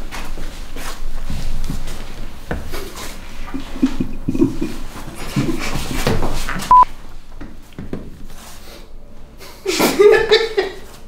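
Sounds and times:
people chuckling: 3.4 - 6.4, 9.6 - 11.0.

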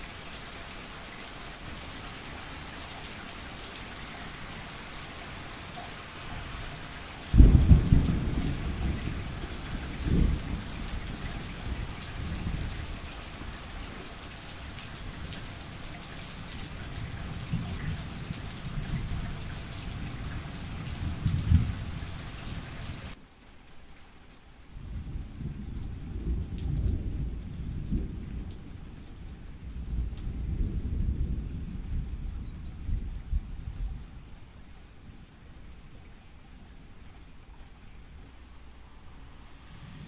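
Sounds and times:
steady rain: 0.0 - 40.0
loud thunderclap: 7.3 - 12.8, 20.8 - 22.0
deep thunder rumbling: 7.3 - 13.6, 16.7 - 23.2, 24.8 - 34.1, 39.1 - 40.0.

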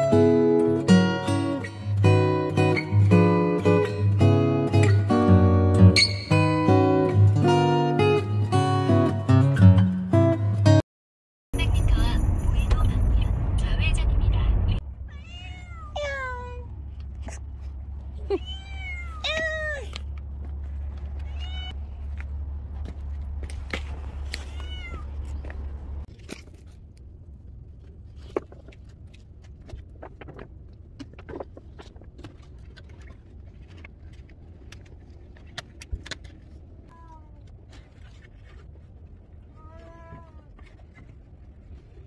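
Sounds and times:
steady low rumble: 11.6 - 42.0
cat meowing: 15.1 - 16.7, 18.4 - 20.0, 21.2 - 21.8, 24.3 - 25.3, 39.5 - 40.7.

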